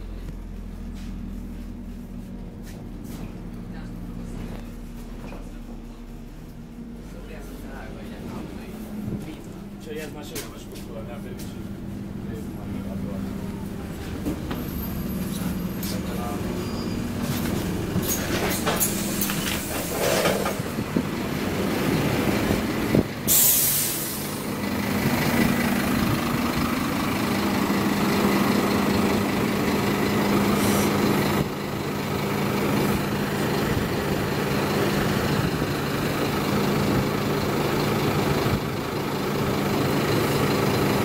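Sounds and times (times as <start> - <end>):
bus diesel engine idling: 0.0 - 41.0
compressed air hiss: 23.3 - 24.4.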